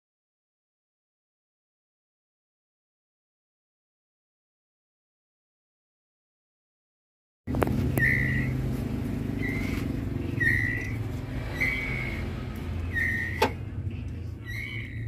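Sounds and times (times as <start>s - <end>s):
steady low hum: 7.5s - 15.0s
bird chicks whistled calls: 7.8s - 13.8s, 14.4s - 15.0s.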